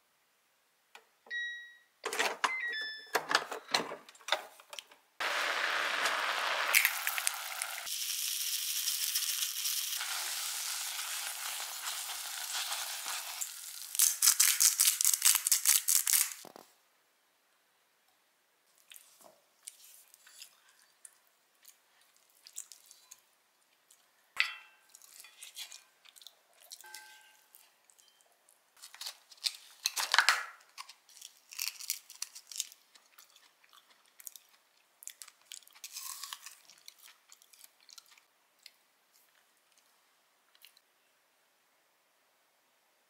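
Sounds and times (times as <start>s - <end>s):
crisp crunches: 12.4s - 16.4s, 30.8s - 38.2s
chewing food: 18.8s - 24.1s, 24.9s - 26.9s, 31.1s - 39.9s, 40.5s - 40.8s.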